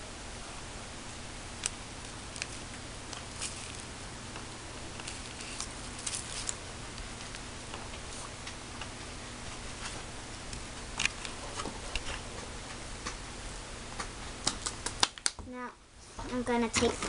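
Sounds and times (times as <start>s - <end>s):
steady low hum: 0.0s - 17.0s
plastic packets crinkling: 2.0s - 8.0s.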